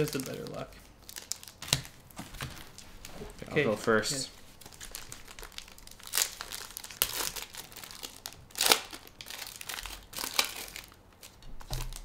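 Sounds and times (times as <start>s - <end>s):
plastic wrappers crinkling and tearing: 0.0s - 12.0s.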